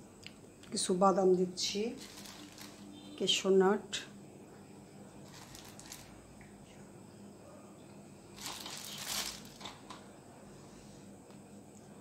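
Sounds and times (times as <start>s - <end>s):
soft rustle and crinkle: 1.8s - 3.2s, 5.2s - 6.2s, 8.4s - 10.0s.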